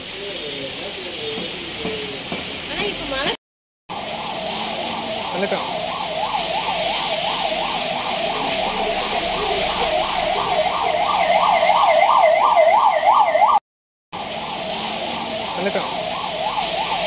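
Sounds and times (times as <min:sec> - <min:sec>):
rain on a wet street: 0:00.0 - 0:13.6, 0:14.2 - 0:17.0
emergency siren yelping: 0:03.9 - 0:13.6, 0:14.2 - 0:17.0.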